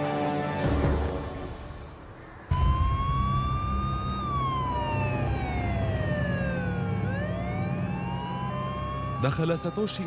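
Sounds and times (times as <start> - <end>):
emergency siren wailing: 2.5 - 10.0.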